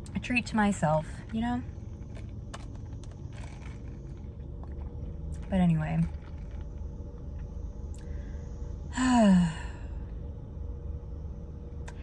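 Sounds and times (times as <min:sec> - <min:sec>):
low hum: 0:00.0 - 0:12.0
woman sighing: 0:08.9 - 0:10.0.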